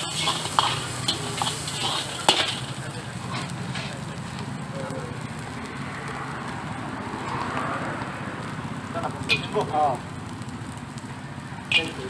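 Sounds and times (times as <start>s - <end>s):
metal ladle scraping a wok: 0.0s - 4.1s, 11.7s - 12.0s
vegetables sizzling in a wok: 0.0s - 12.0s.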